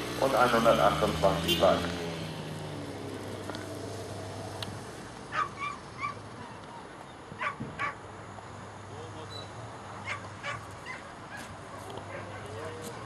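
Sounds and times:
dog yelping: 0:05.3 - 0:06.6, 0:07.4 - 0:08.0, 0:10.0 - 0:13.0.

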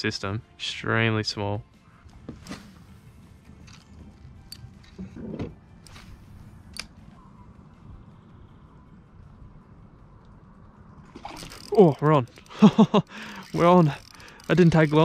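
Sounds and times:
sharp reel clicks: 0:13.3 - 0:15.0.

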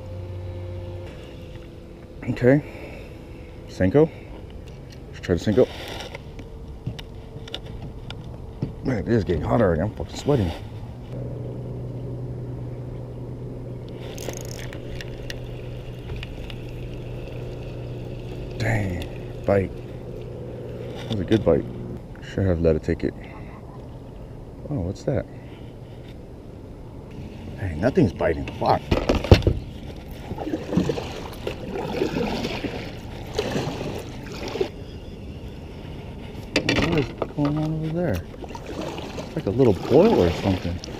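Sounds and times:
steady low hum: 0:00.0 - 0:40.9
fishing reel clicking: 0:14.0 - 0:15.5
water trickling: 0:14.4 - 0:20.9
paddle splashing in water: 0:30.1 - 0:34.7, 0:38.2 - 0:40.9.

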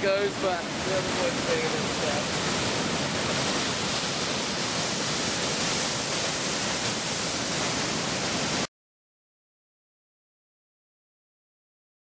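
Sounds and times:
waterfall pouring onto rocks: 0:00.0 - 0:08.7.

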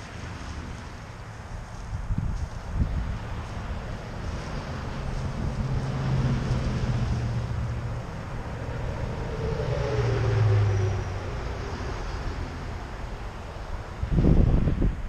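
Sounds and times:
car passing: 0:00.0 - 0:15.0
pickup truck passing: 0:02.8 - 0:14.6.

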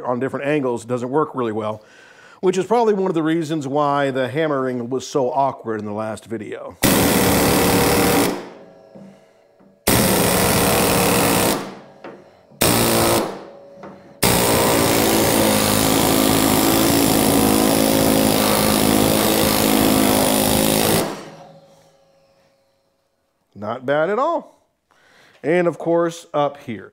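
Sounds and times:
air hammer hammering steel: 0:06.8 - 0:22.5.

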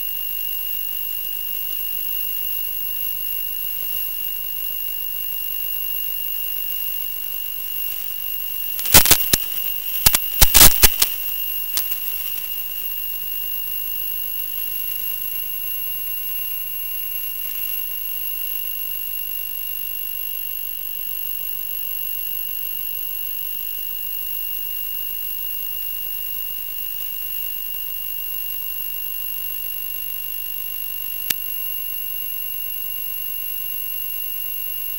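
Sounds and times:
hiss: 0:08.8 - 0:12.7
sharp clicks: 0:08.8 - 0:12.8.

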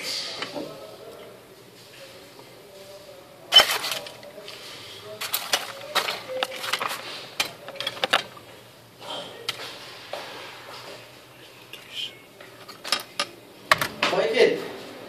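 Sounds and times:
metal tools clicking and clinking: 0:05.2 - 0:08.4.

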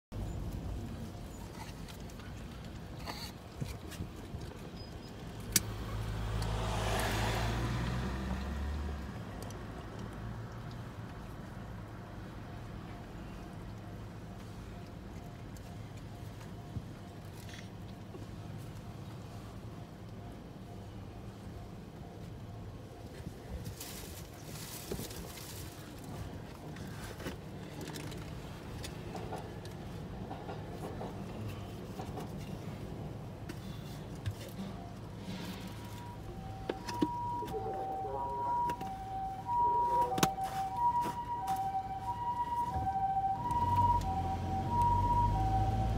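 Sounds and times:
vehicle passing by: 0:05.6 - 0:11.1, 0:35.1 - 0:45.9
train rumbling past: 0:29.0 - 0:33.4, 0:34.6 - 0:37.7.

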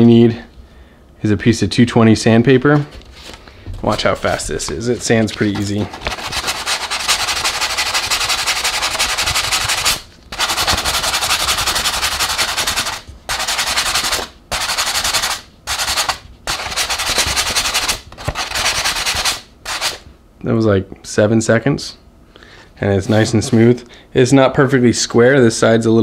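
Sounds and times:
sandpaper rubbing on foam board: 0:05.0 - 0:20.0, 0:23.0 - 0:23.7.

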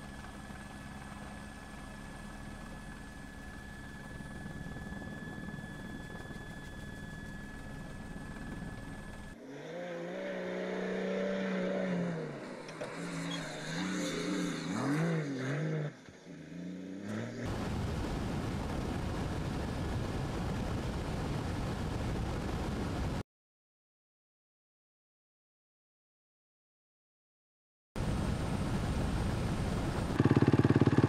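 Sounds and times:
rally car engine revving: 0:09.4 - 0:17.5
steady rushing noise: 0:17.5 - 0:23.2, 0:28.0 - 0:31.0.

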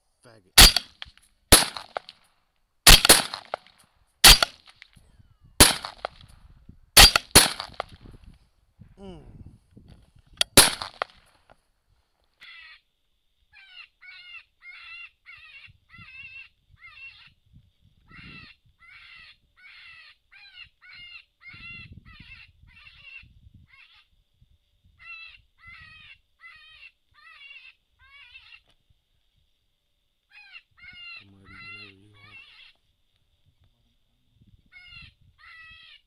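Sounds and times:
high yelping distress cries: 0:13.6 - 0:17.3, 0:18.1 - 0:24.0, 0:25.0 - 0:28.6, 0:30.3 - 0:32.8, 0:34.8 - 0:36.0.

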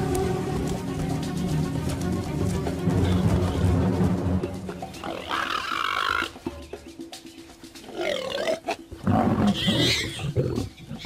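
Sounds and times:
warthogs squealing: 0:05.0 - 0:06.4, 0:07.9 - 0:11.0.

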